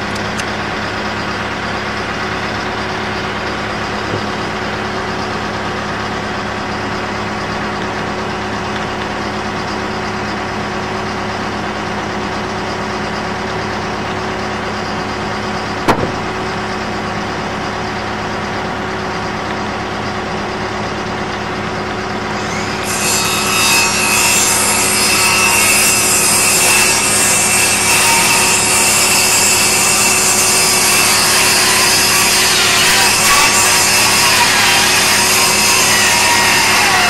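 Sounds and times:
machine engine idling: 0:00.0 - 0:22.5
circular saw cutting wood: 0:21.9 - 0:37.0.

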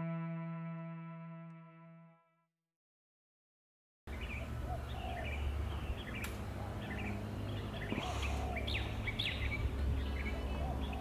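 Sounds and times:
low outdoor rumble: 0:04.1 - 0:11.0
small birds chirping: 0:04.1 - 0:11.0.

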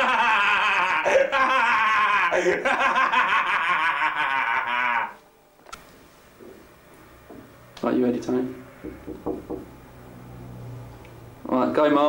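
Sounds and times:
people laughing hard: 0:00.0 - 0:05.2.

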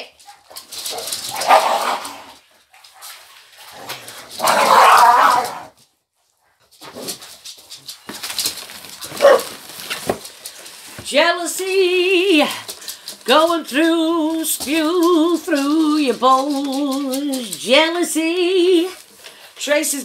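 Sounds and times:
small dog making rough sounds: 0:03.8 - 0:05.8.

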